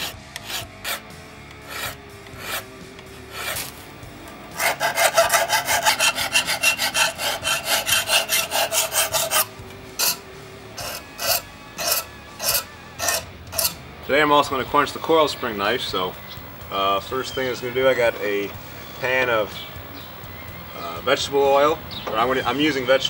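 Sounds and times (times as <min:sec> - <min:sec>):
file rasping on steel: 0:00.0 - 0:03.8, 0:04.5 - 0:13.8.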